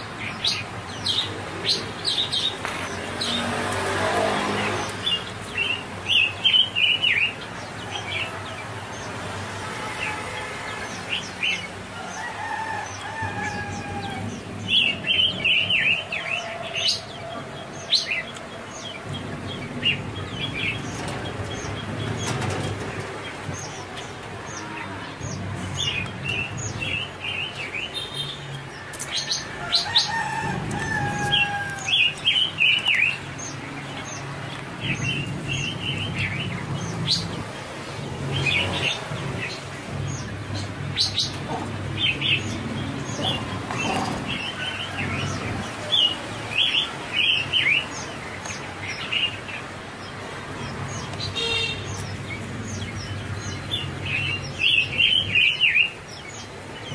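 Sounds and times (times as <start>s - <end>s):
birds chirping: 0.0s - 56.9s.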